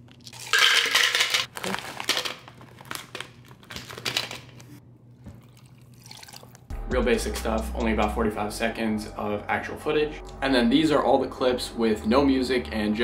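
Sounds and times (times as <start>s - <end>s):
packaging crinkling and rustling: 1.4s - 4.8s.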